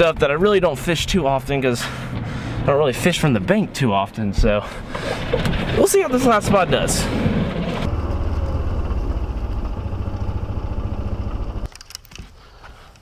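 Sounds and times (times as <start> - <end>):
golf cart motor humming: 6.7 - 11.7.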